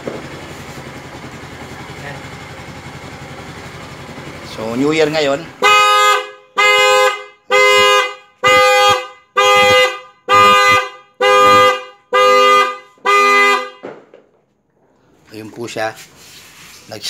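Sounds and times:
scooter horn honking: 5.2s - 14.1s.

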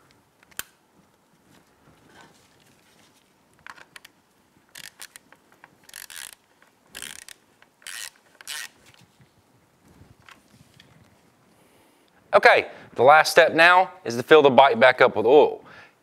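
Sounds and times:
hand ratchet clicking: 4.7s - 5.2s, 5.8s - 8.8s.

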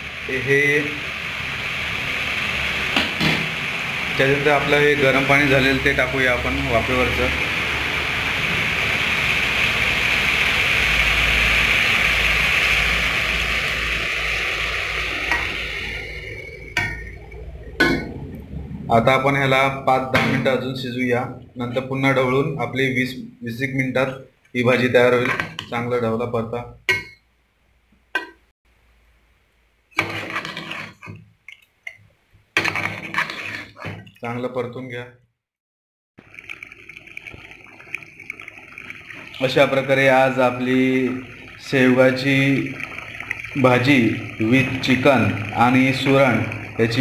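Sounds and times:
water pouring into pot: 0.0s - 20.8s, 32.6s - 34.4s, 36.2s - 47.0s
masala sizzling: 0.0s - 23.0s, 24.6s - 26.0s, 28.1s - 34.4s, 36.2s - 47.0s
ladle stirring thick curry: 30.0s - 32.0s, 32.6s - 34.4s.

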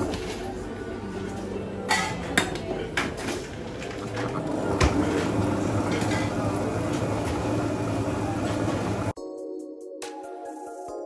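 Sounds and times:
faint murmur of voices: 0.0s - 4.4s
electronic background music: 9.1s - 11.0s.

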